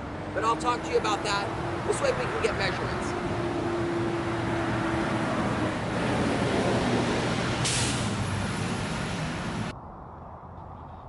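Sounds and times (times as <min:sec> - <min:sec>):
construction work: 0:00.0 - 0:09.7
highway traffic roar: 0:00.0 - 0:11.0
hiss: 0:07.6 - 0:08.2.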